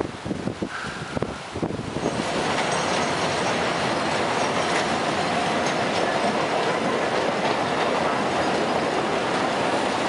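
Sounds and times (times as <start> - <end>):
freight train wheels rumbling on rails: 0.4 - 10.0.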